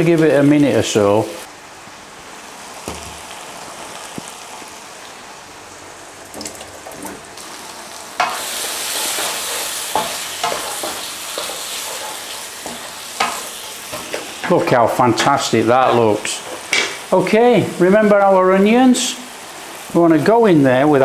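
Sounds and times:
curry sauce sizzling in a pan: 2.3 - 5.4, 7.4 - 20.0
wooden spatula scraping a pan: 8.2 - 17.0.

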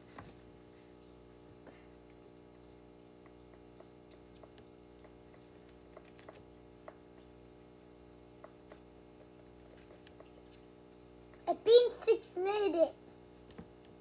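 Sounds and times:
low room hum: 0.0 - 14.0
guinea pig chewing: 1.3 - 12.2.

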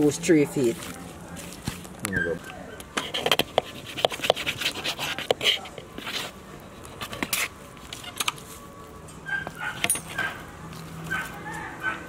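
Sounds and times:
knife scraping against bowl: 3.0 - 8.2.

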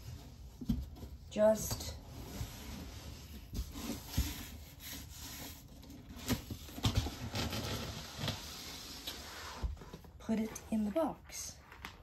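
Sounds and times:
cardboard rubbing and scraping: 2.1 - 10.1.

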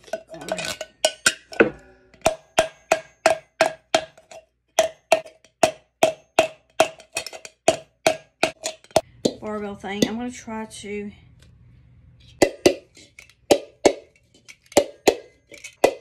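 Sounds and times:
rubber mallet striking tin can: 0.6 - 9.4, 12.4 - 16.0.

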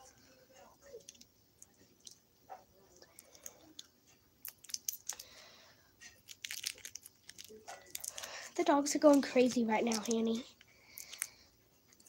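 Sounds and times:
plastic wrapper crinkling: 4.4 - 5.4, 6.0 - 12.0.

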